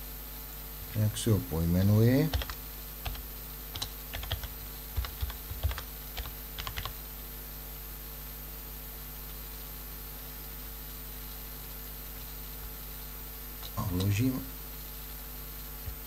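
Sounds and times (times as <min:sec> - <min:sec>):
low electrical hum: 0:00.0 - 0:16.0
typing on a computer keyboard: 0:02.3 - 0:07.0.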